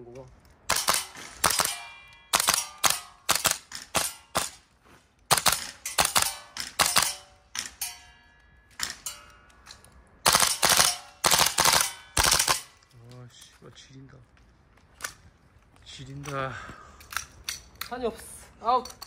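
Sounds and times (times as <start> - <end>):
airsoft rifle shots: 0.7 - 4.6, 5.3 - 7.8, 10.2 - 12.7.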